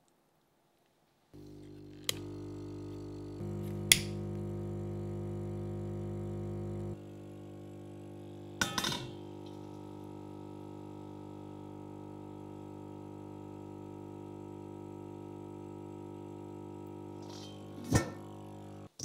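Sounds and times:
steady low hum: 1.4s - 18.9s
metal cover clinking on plate: 8.6s - 9.2s.

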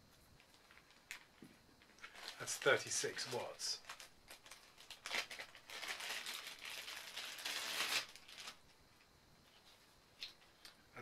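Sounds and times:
plastic bag crinkling: 0.4s - 8.6s.

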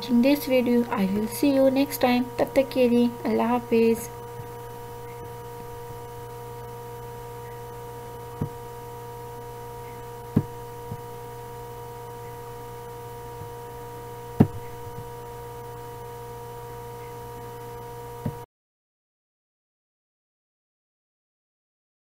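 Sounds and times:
steady electrical hum: 0.0s - 18.5s
sharp knocks: 14.4s - 14.7s.

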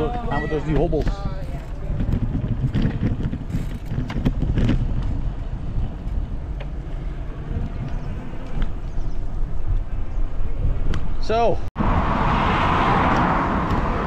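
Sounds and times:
tyres rattling over paving: 0.0s - 10.6s
wind buffeting microphone: 0.0s - 14.0s.

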